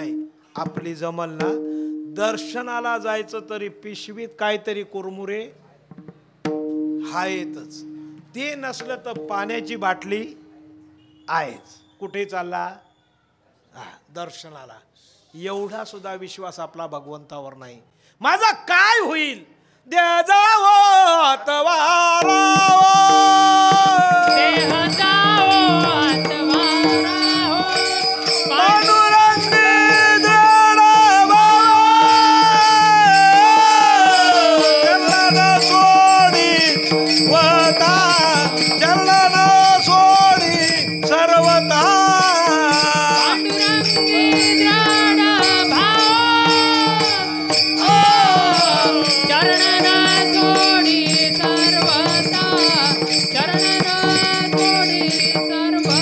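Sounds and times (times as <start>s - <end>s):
person singing: 21.8s - 56.0s
hand cymbals jingling: 22.2s - 56.0s.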